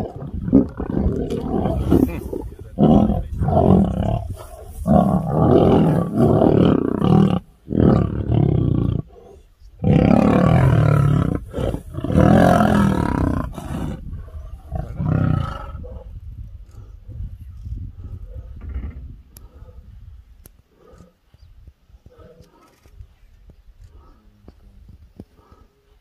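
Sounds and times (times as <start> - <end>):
lions roaring: 0.0 - 14.0.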